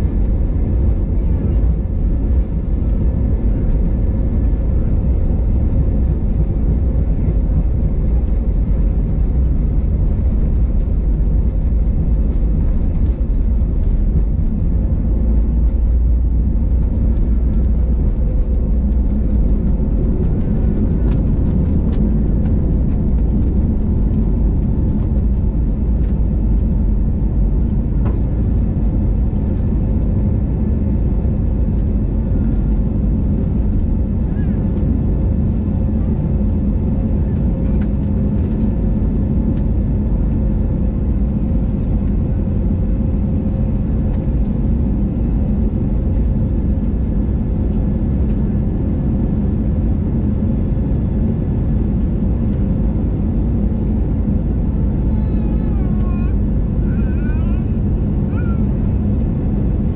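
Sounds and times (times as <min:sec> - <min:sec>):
jet engines rumbling: 0:00.0 - 0:59.9.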